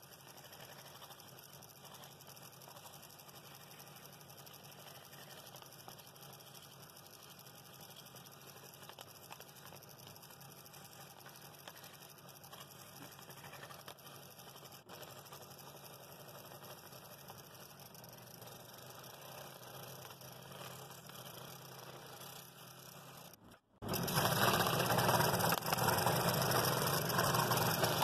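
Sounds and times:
scroll saw cutting wood: 10.7s - 28.0s
low motor hum: 23.1s - 28.0s.

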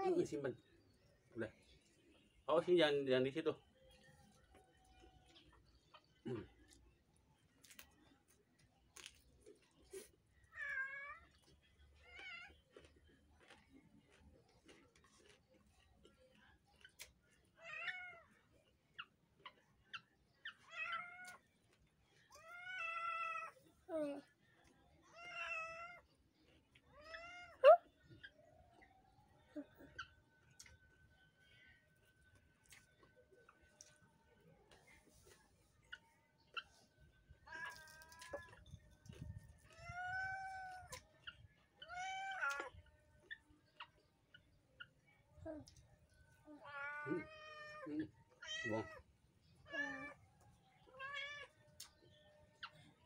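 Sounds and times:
cat meowing: 50.9s - 51.6s.

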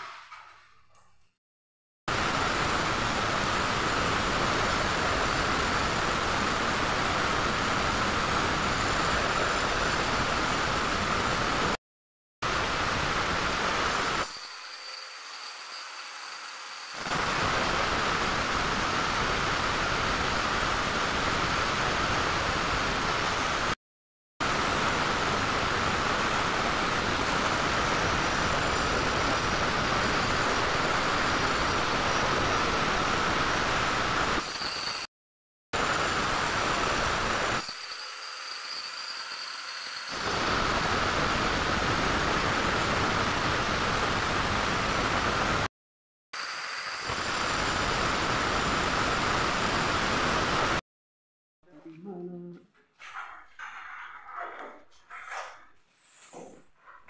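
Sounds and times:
angle grinder cutting tile: 14.0s - 17.7s, 36.4s - 40.8s.

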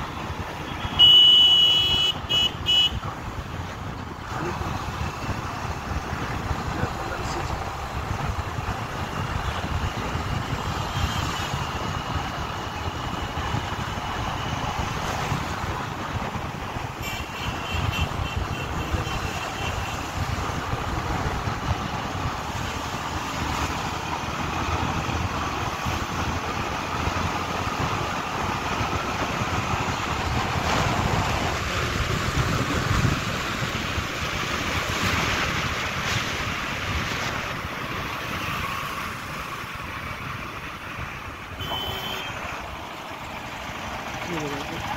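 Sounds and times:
tyres on road: 0.0s - 44.9s
wind rushing over microphone: 3.0s - 17.0s, 17.8s - 41.4s.

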